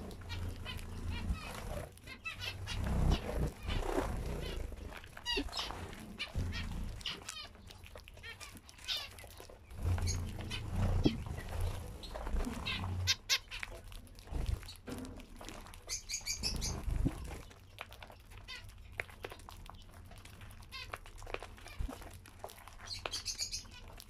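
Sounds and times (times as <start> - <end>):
finches chirping: 0.0 - 7.6, 8.2 - 13.6, 15.9 - 17.2, 22.8 - 23.8.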